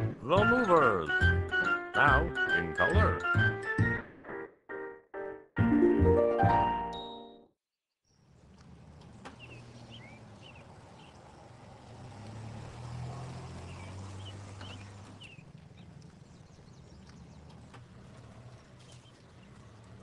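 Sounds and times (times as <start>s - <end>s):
small birds chirping: 8.0s - 12.4s, 13.1s - 20.0s
car driving past: 8.3s - 20.0s.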